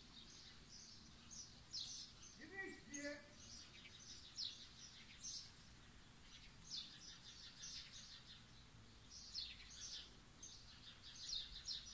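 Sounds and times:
small birds chirping: 0.0 - 11.9.

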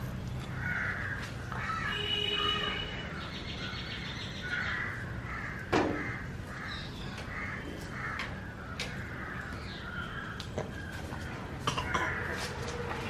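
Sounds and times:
crows cawing: 0.5 - 2.8, 4.4 - 10.9, 11.7 - 12.6.

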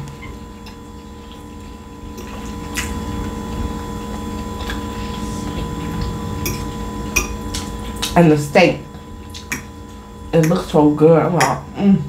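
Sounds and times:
faint hum: 0.0 - 12.0
close-up chewing mouth sounds: 0.2 - 8.2, 9.2 - 9.7.

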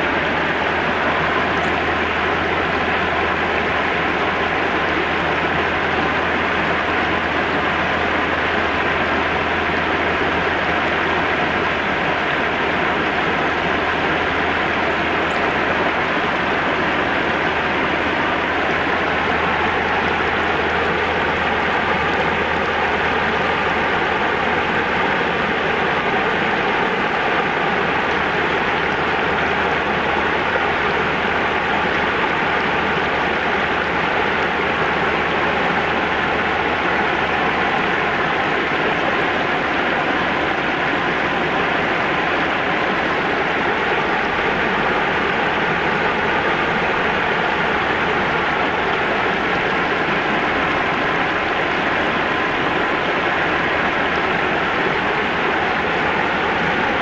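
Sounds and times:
river water rushing over weir: 0.0 - 57.0.

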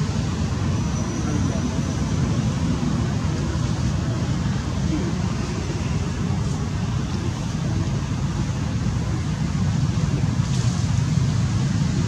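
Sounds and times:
faint hiss: 0.0 - 12.0
low rumbling noise: 0.0 - 12.0.

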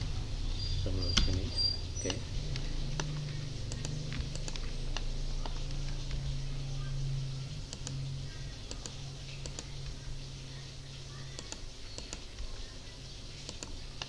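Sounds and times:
steady low hum: 0.0 - 14.0
computer mouse clicks: 2.0 - 6.3, 7.7 - 8.0, 8.6 - 10.0, 11.3 - 12.5, 13.4 - 14.0.

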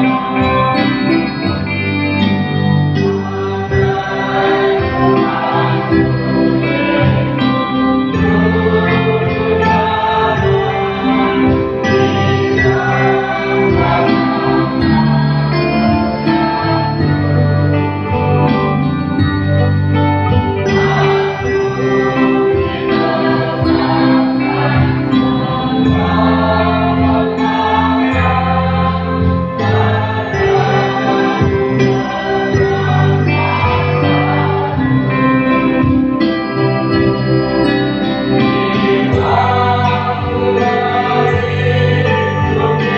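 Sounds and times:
electric bass guitar low notes: 0.0 - 42.9
mixed choir singing: 0.0 - 42.9.

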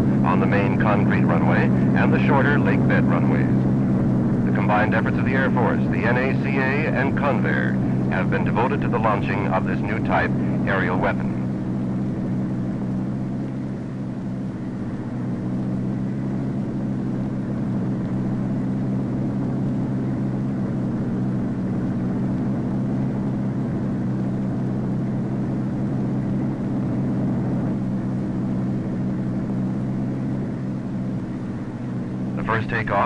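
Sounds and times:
aircraft engine drone: 0.0 - 33.0.

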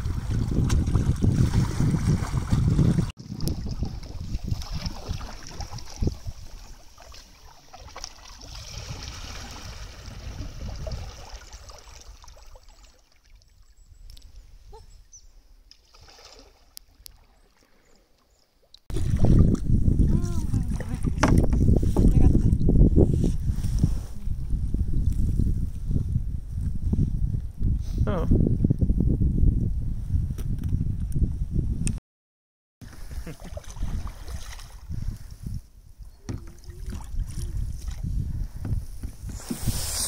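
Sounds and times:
wind buffeting microphone: 0.0 - 7.0, 8.4 - 11.7, 18.9 - 32.0, 32.9 - 40.0
paddle blades splashing: 0.0 - 13.5, 15.7 - 18.3, 32.8 - 34.9, 36.3 - 40.0
water trickling off paddles: 0.0 - 14.4.

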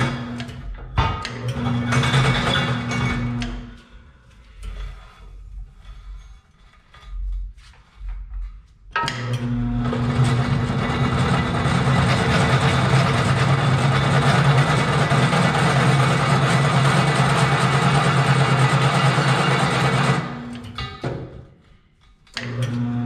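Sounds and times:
drill press motor humming: 0.0 - 3.8, 9.0 - 20.8, 22.4 - 23.0.

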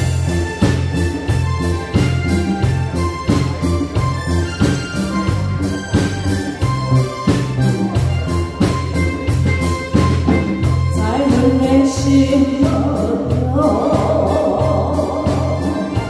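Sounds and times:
drum beat and bass line: 0.0 - 16.0
woman singing into a microphone: 10.9 - 16.0.

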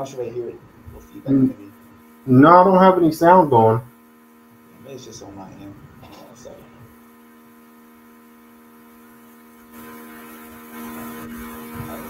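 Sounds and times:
electrical mains hum: 0.0 - 12.0
hiss: 9.6 - 12.0.

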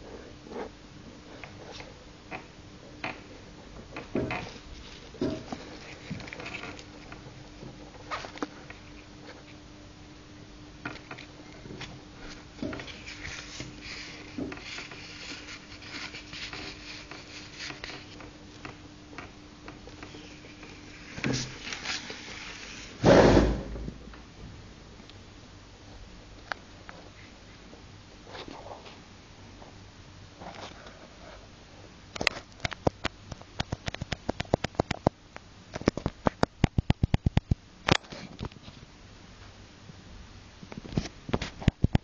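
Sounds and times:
faint steady hum: 0.0 - 42.0
loud bump: 23.0 - 24.1.

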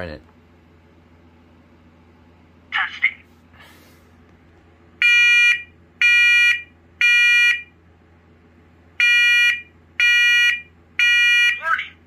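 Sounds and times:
smoke alarm shrill beeps: 5.0 - 7.7, 9.0 - 11.6.

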